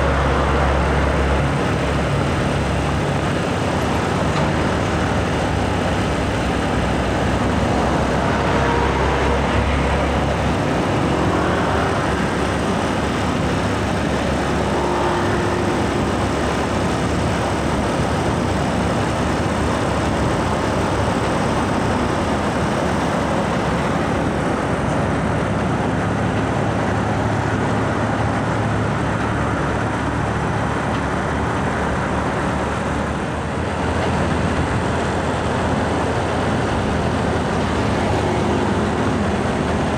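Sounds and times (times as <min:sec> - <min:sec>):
heavy trucks passing close: 0:00.0 - 0:39.9.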